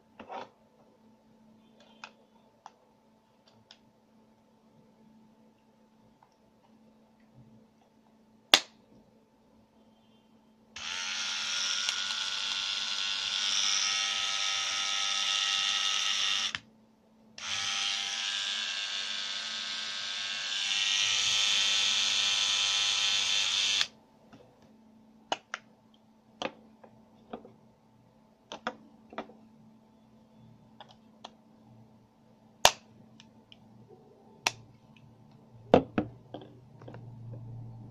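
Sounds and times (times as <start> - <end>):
small electric motor buzzing: 10.8 - 16.6, 17.4 - 23.9.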